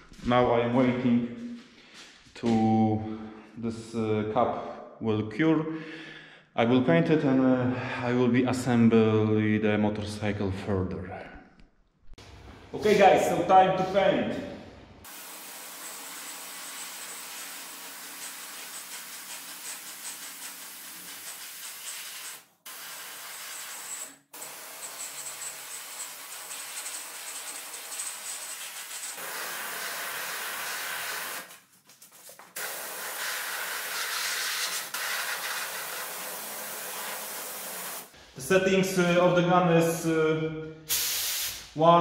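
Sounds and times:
paint spray gun hissing: 15.1 - 31.5, 32.6 - 38.2, 40.9 - 41.7.

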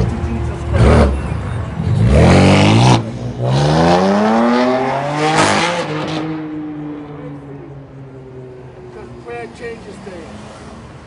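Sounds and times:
car accelerating hard: 0.6 - 7.4.

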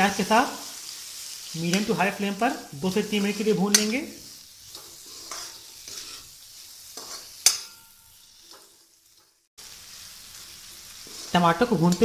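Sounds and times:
vegetables sizzling in a pan: 0.0 - 12.0
metal spatula scraping: 1.4 - 9.5, 10.3 - 12.0
sharp metal clank: 7.0 - 8.1.

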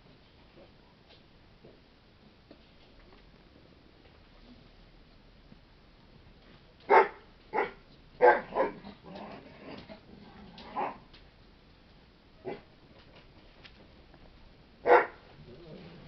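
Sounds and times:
dog barking: 6.9 - 8.8, 12.4 - 12.7, 14.8 - 15.3.

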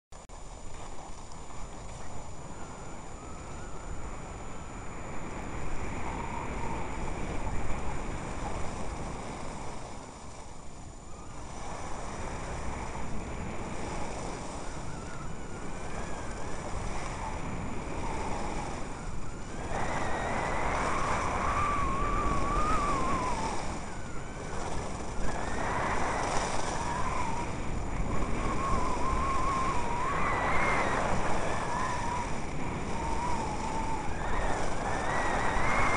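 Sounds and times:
wavering whine: 0.2 - 35.9
wind rushing over microphone: 0.2 - 35.9
skis sliding over snow: 5.2 - 35.9.

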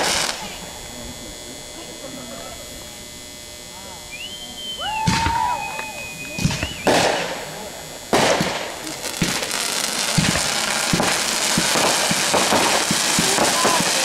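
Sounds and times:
firework bangs: 0.0 - 0.6, 4.9 - 14.0
firework crackle: 0.0 - 14.0
firework whistle: 4.0 - 7.5, 8.1 - 14.0.

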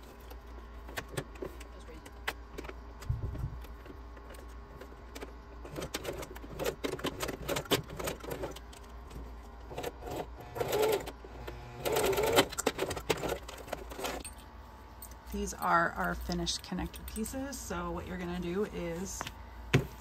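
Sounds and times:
sewing machine motor hum: 9.6 - 14.2.

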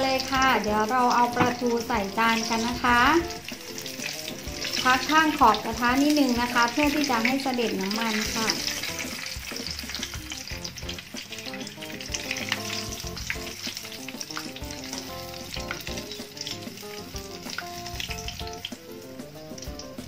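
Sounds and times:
fish sizzling in oil: 0.0 - 20.0.

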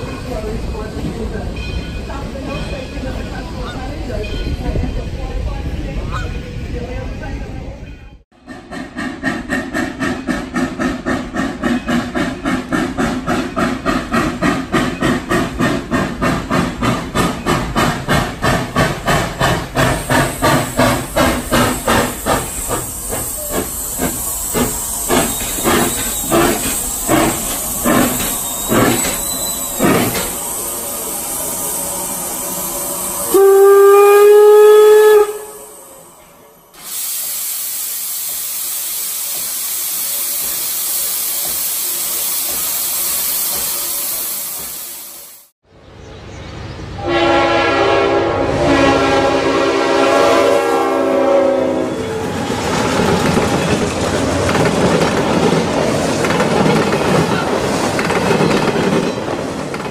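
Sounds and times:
steam locomotive exhaust beats: 8.3 - 35.8, 36.8 - 45.5
steam venting hiss: 8.5 - 33.4, 36.8 - 45.5
steam whistle blast: 33.2 - 35.8, 47.0 - 52.3.

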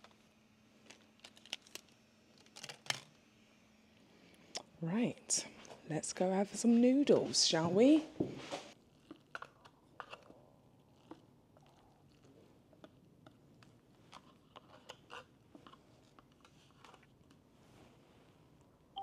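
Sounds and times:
quiet chewing: 8.8 - 17.4.

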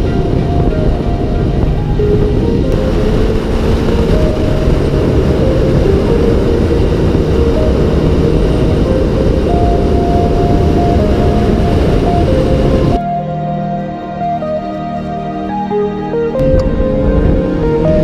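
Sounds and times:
motorcycle engine running: 0.0 - 13.0
wind rush over camera: 0.0 - 13.0.

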